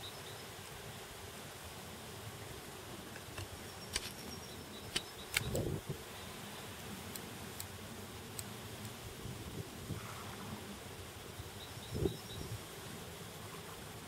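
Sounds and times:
insects buzzing: 0.0s - 14.0s
sharp clicks: 3.2s - 5.7s.

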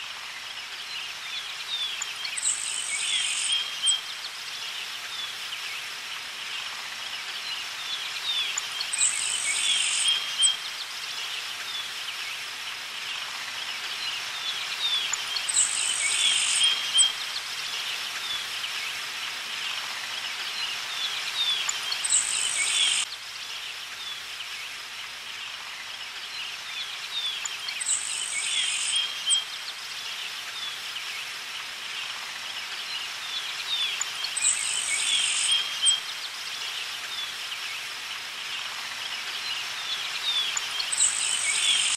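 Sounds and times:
insects trilling: 8.2s - 10.6s, 13.2s - 17.2s, 19.7s - 23.1s, 26.8s - 30.1s, 32.1s - 36.9s, 38.5s - 41.9s
birds chirping: 21.0s - 23.1s.

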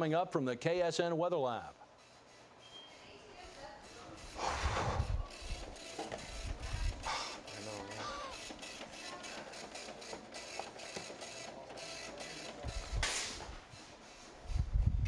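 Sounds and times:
burst of hiss: 4.4s - 5.2s.

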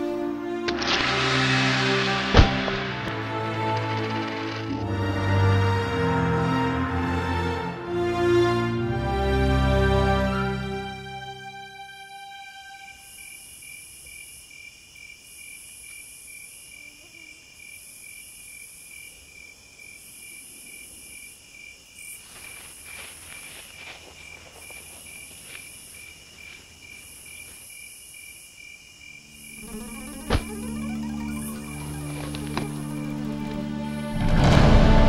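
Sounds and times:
sudden loud knock: 2.0s - 3.2s
crickets chirping: 11.4s - 34.1s
high insect trill: 11.8s - 34.1s
soft rustling: 22.2s - 27.6s.

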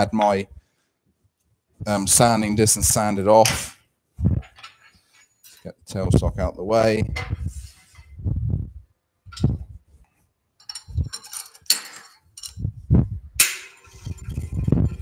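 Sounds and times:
metallic clinks: 10.6s - 12.7s.

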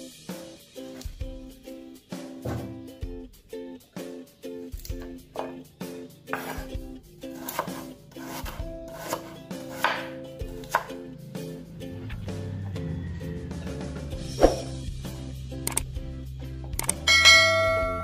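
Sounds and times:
knife chopping on wooden board: 5.4s - 5.6s, 6.3s - 11.0s.

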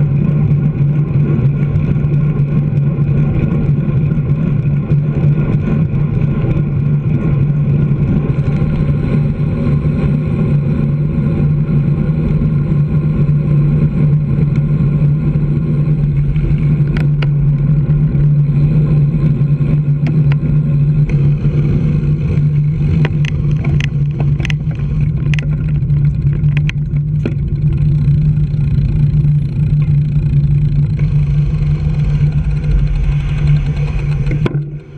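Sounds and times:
road rumble: 0.0s - 34.9s
truck diesel engine drone: 0.0s - 34.9s
wind: 0.0s - 34.9s
sharp clicks or knocks: 32.3s - 34.9s.

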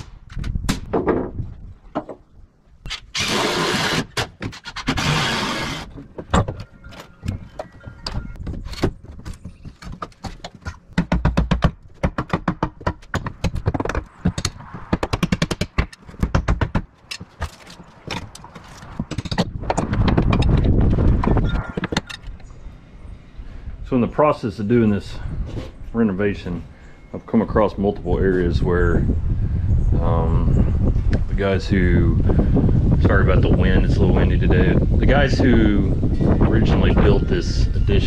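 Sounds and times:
carpentry knocks and taps: 1.9s - 2.2s, 9.8s - 18.4s
wind buffeting microphone: 18.8s - 24.1s, 27.4s - 38.0s.

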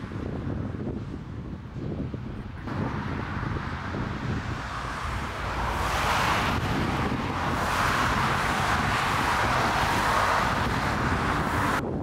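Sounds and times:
wind buffeting microphone: 0.0s - 12.0s
jet engines rushing: 2.6s - 11.8s.

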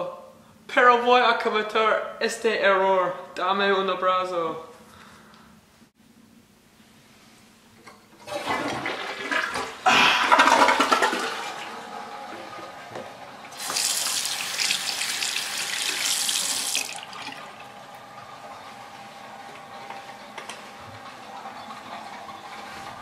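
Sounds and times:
toilet flushing: 8.2s - 23.0s
sink tap running over hands: 13.6s - 17.0s.

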